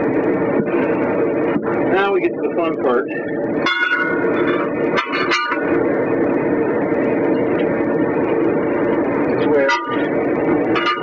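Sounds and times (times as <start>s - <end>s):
steady hum: 0.0s - 11.0s
tire irons clanking on metal rim: 3.6s - 5.8s, 9.4s - 11.0s.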